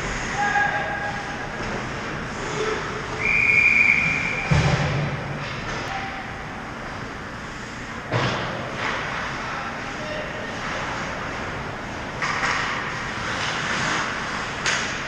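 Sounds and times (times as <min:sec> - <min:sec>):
referee whistle blast: 0:03.2 - 0:04.6
skates on ice: 0:12.4 - 0:15.0.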